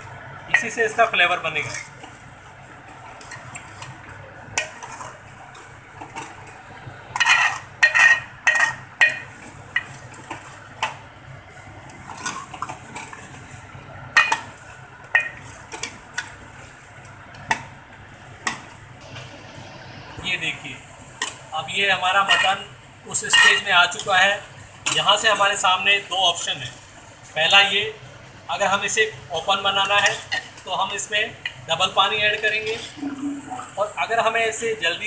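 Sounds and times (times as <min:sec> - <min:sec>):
metal spoon scraping a metal pot: 0:07.2 - 0:09.2.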